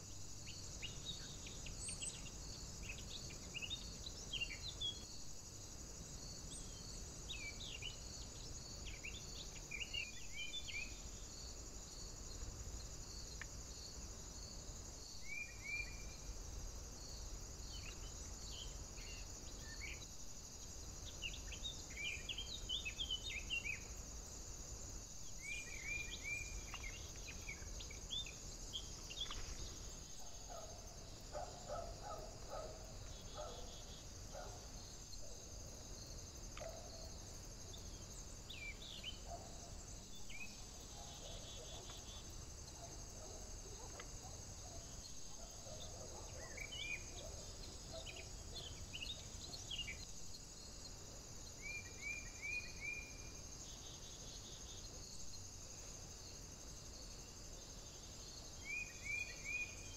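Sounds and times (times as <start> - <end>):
small birds singing: 0.0 - 5.1, 6.2 - 16.3, 17.0 - 24.3, 25.0 - 35.4, 36.0 - 50.7
steady high hiss: 0.0 - 59.9.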